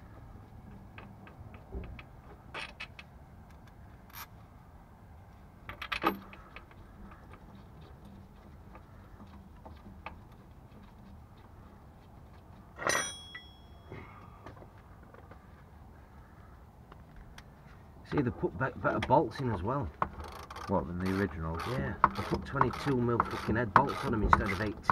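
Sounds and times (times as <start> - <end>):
metal tools clinking and rattling: 12.8 - 14.0.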